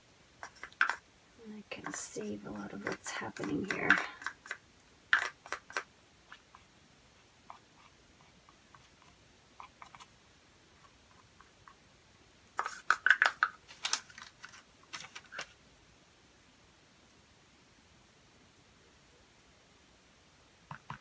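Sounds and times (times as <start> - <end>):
plastic paint cups clicking: 0.4 - 1.0, 1.8 - 6.4, 12.6 - 15.5.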